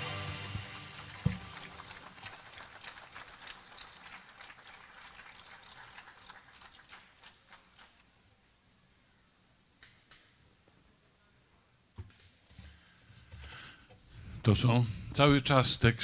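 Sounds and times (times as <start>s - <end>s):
acoustic guitar chord: 0.0s - 1.9s
audience applause: 0.0s - 8.0s.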